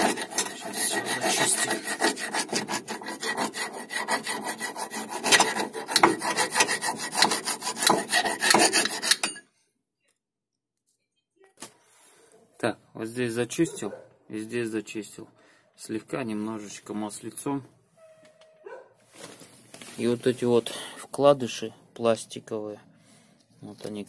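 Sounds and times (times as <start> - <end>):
file rasping in metal bore: 0.0 - 9.3.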